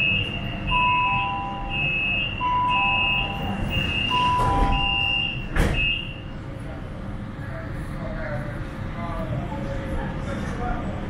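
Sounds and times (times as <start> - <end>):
high electronic beeps: 0.0 - 6.2
train doors thumping shut: 3.5 - 6.1.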